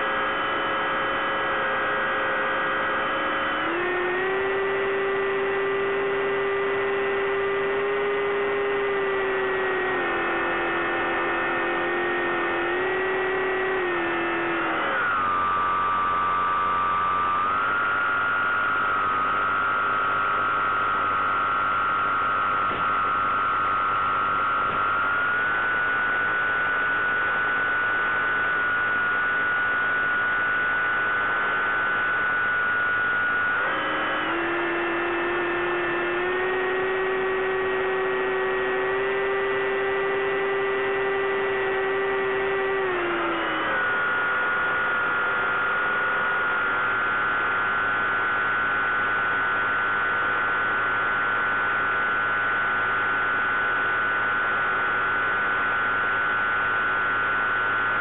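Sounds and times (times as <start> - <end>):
electric motor and propeller whining: 0.0 - 50.4.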